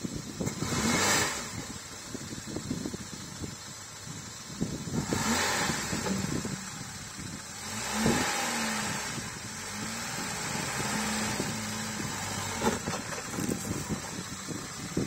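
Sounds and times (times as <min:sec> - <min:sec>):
car engine pulling at low speed: 0:00.0 - 0:15.0
tyres knocking and crunching on stone: 0:12.5 - 0:14.2.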